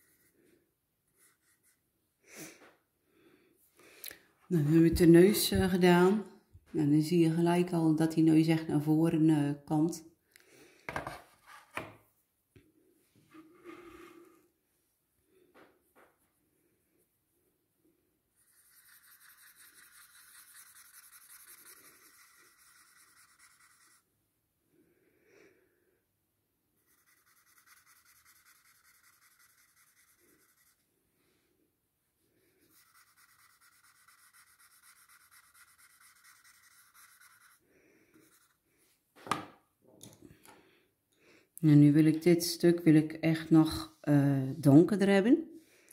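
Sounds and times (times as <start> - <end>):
pencil scratching on paper: 0.0 - 0.4, 1.1 - 1.9, 18.4 - 24.1, 26.8 - 30.9, 32.6 - 38.6.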